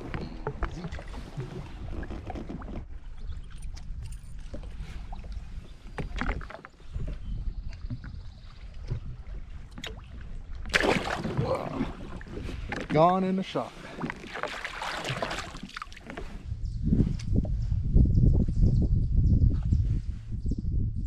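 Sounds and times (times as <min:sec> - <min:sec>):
water lapping against hull: 0:00.0 - 0:16.6
splashing water rush: 0:10.7 - 0:12.3, 0:14.0 - 0:15.9.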